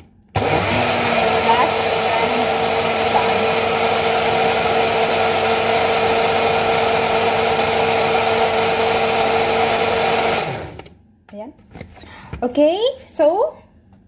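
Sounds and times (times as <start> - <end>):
blender motor running: 0.4 - 10.9.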